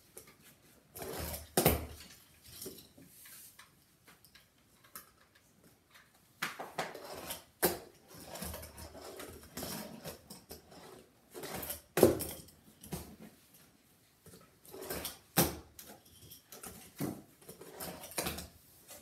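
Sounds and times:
fingerboard rolling and rattling: 6.8s - 12.3s, 14.7s - 15.9s.

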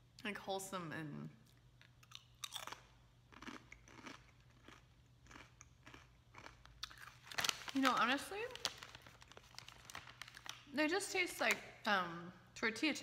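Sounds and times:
person chewing crisp chip: 1.4s - 7.7s.

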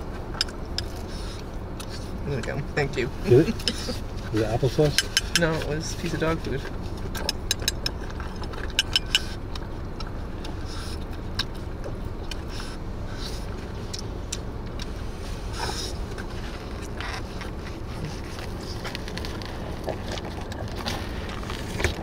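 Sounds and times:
low rumble inside car: 0.0s - 22.0s
dog eating from bowl: 3.5s - 14.0s, 15.7s - 22.0s.

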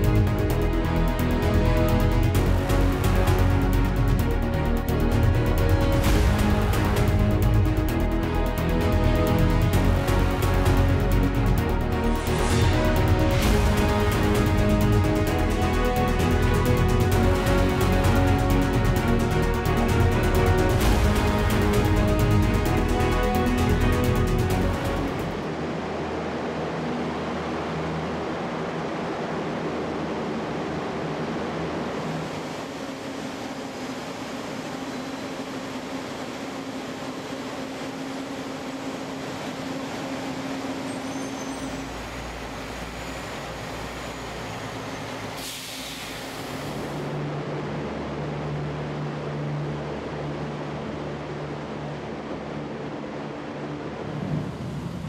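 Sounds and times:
hovercraft turbines droning: 0.0s - 55.0s
low hum: 0.0s - 55.0s
brief higher hiss: 45.3s - 47.2s.

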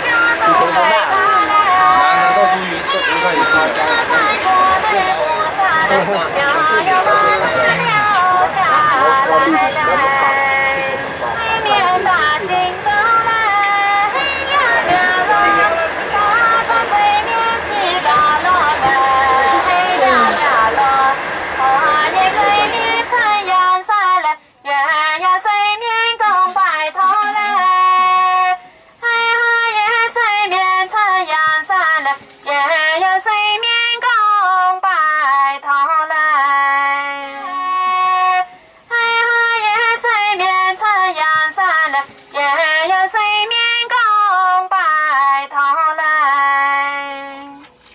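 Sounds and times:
high-pitched voice singing: 26.4s - 28.4s.

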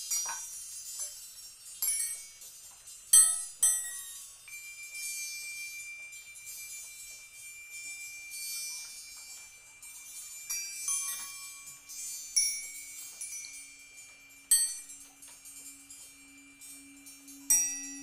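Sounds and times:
percussion on porcelain bowls: 0.0s - 18.0s
high ringing tones: 3.2s - 18.0s
low ringing tone: 4.5s - 18.0s.

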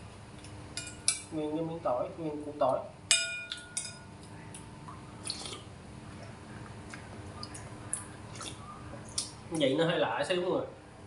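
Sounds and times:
spoon clinking on bowl: 3.1s - 4.1s
sipping: 4.9s - 9.4s.

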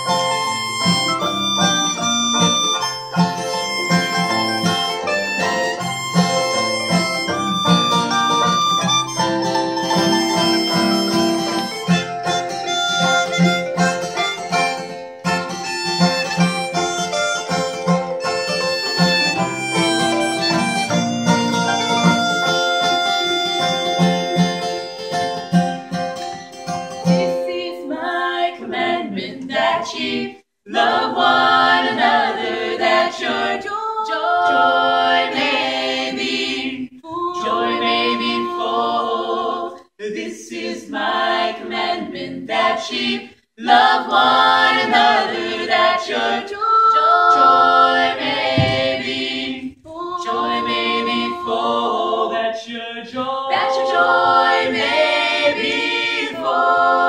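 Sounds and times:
group singing gospel in harmony: 27.3s - 57.0s.

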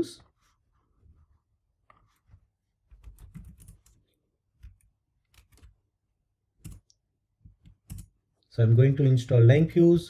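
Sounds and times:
faint keyboard typing: 2.9s - 5.9s, 6.6s - 8.2s.

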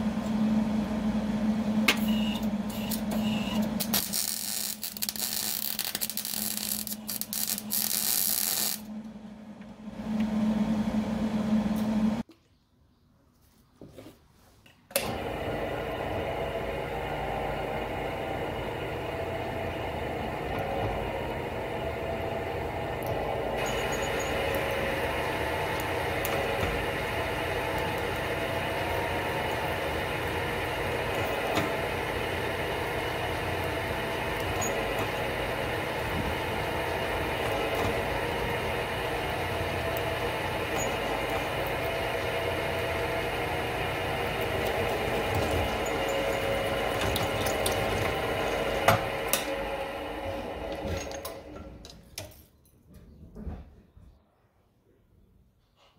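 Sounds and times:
drill press cutting metal: 1.8s - 8.9s, 14.9s - 51.8s.

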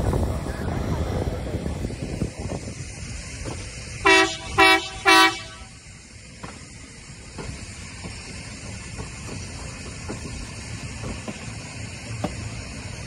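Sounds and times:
train rumbling on rails: 0.0s - 13.0s
train air horn blasts: 4.0s - 5.8s.

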